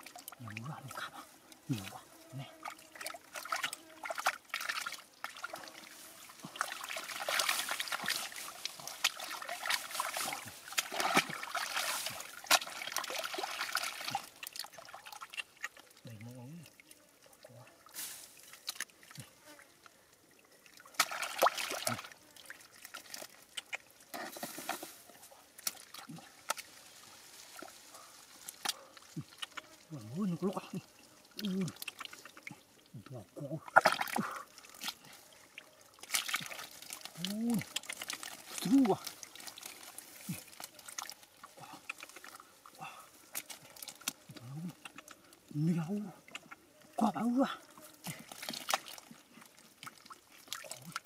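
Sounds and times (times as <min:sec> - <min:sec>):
hands squelching in wet mud: 0:02.6 - 0:15.9, 0:20.8 - 0:51.0
low grunt: 0:37.2 - 0:37.7, 0:44.3 - 0:44.8, 0:47.0 - 0:48.2.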